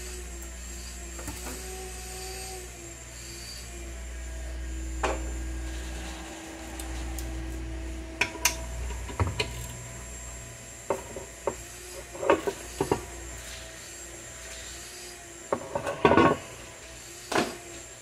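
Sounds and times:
steady low hum: 0.0 - 17.3.

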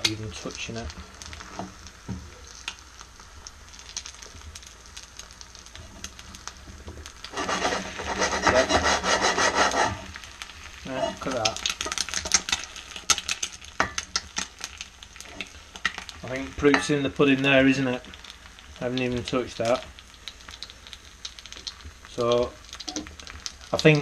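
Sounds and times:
egg sizzling in fat: 0.0 - 24.0
skillet scraping on metal hotplate: 7.3 - 10.2.

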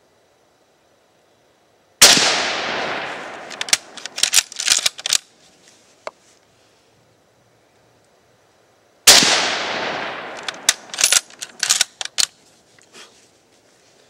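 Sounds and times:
rifle shot echoing: 2.0 - 4.3, 9.1 - 11.9
rifle bolt metallic clicks: 3.3 - 5.3, 10.1 - 12.4.

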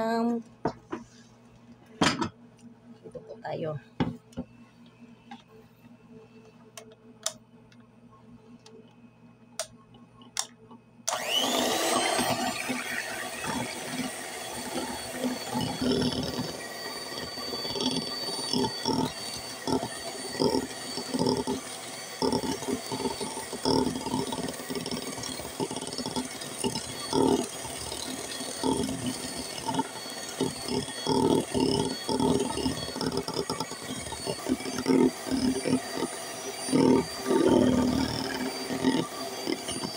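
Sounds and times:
electric hand mixer running: 11.1 - 39.9.

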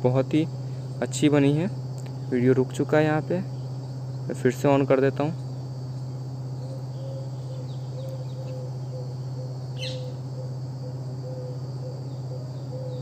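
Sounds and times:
crickets buzzing: 0.0 - 13.0
low hum: 0.0 - 13.0
bird chirp: 6.0 - 13.0.

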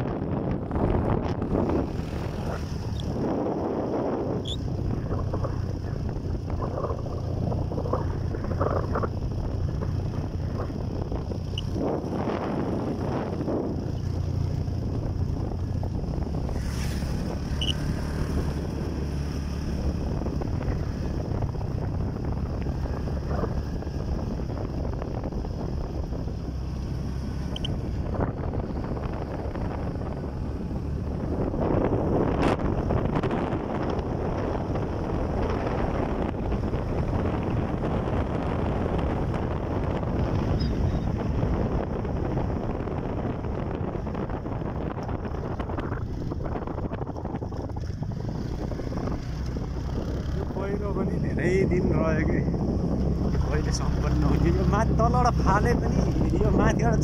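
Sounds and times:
vehicle engine and road noise: 0.0 - 57.0
wind buffeting microphone: 0.0 - 57.0.

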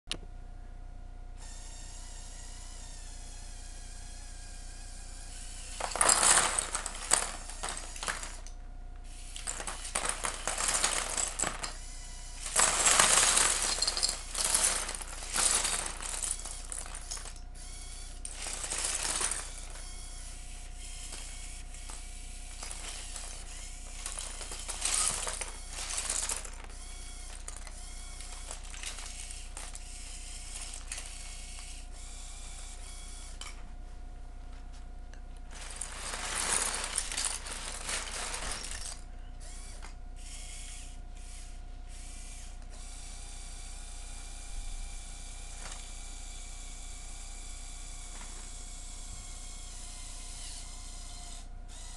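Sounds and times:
plastic bricks clattering onto paper: 5.7 - 8.5, 9.4 - 11.8, 12.4 - 17.4, 18.2 - 19.8, 21.0 - 31.7, 35.5 - 39.0.

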